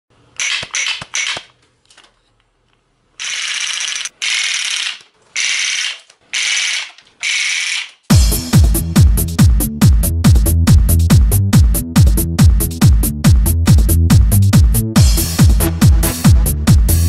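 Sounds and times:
toy gun clattering bursts: 0:00.4 - 0:01.6, 0:03.2 - 0:08.1.

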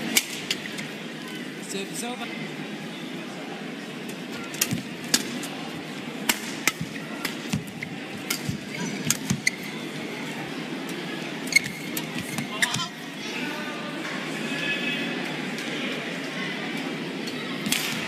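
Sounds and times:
indoor arena hum: 0:00.0 - 0:18.0
rackets hitting shuttlecock: 0:06.2 - 0:09.6.

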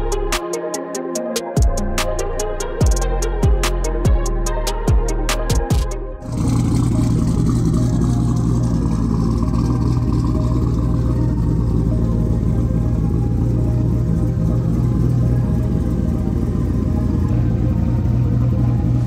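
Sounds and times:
music with deep bass drops: 0:00.0 - 0:19.0
car engine idling: 0:06.2 - 0:19.0.

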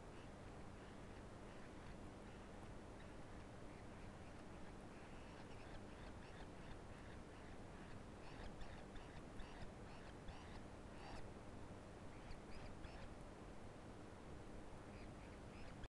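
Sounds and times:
faint short animal calls: 0:00.1 - 0:11.3.

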